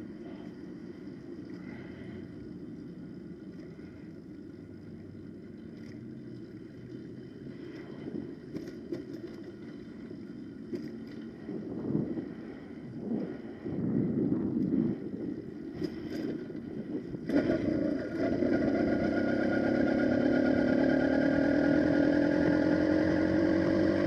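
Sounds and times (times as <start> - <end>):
two-stroke bicycle engine running: 17.2 - 24.0.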